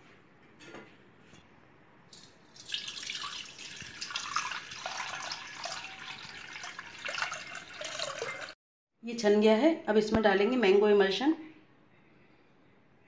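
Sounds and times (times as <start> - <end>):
water pouring into a steel pot: 2.2 - 8.6.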